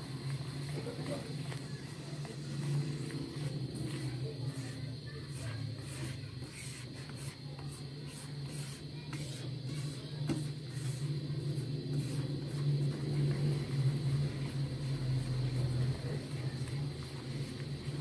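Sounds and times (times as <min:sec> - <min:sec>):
flour frying and sizzling: 0:00.0 - 0:18.0
spatula stirring in a wok: 0:00.0 - 0:18.0
steady low hum: 0:00.0 - 0:18.0.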